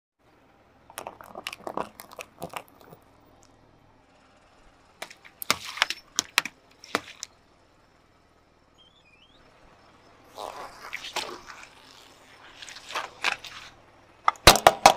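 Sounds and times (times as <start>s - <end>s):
plastic pots cracking under tyre: 0.9s - 3.0s, 5.0s - 7.3s, 10.3s - 14.9s
water balloons bursting: 0.9s - 3.0s, 5.0s - 7.3s, 10.3s - 14.9s
water splashing: 0.9s - 3.0s, 10.3s - 13.8s.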